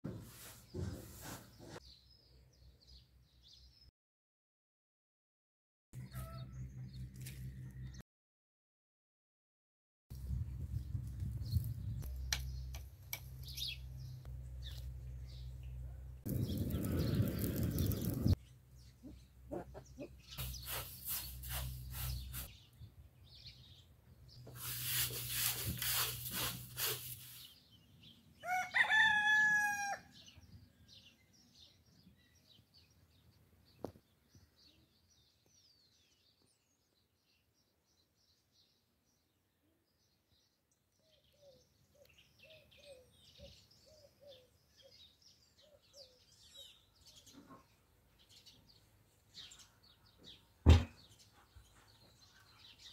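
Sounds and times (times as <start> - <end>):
rooster crowing: 28.4 - 30.2.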